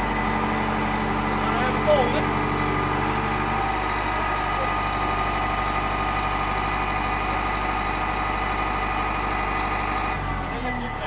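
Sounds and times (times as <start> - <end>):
level-crossing warning bells: 7.4 - 11.0.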